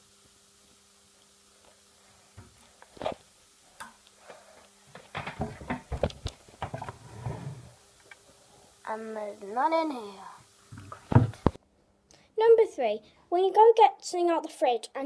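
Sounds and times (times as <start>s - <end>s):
clicks and knocks of handling: 4.9s - 6.9s.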